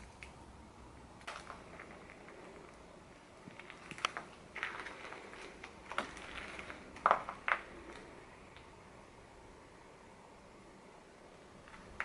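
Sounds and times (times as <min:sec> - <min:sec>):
footsteps crunching on rubble: 0:01.2 - 0:08.2.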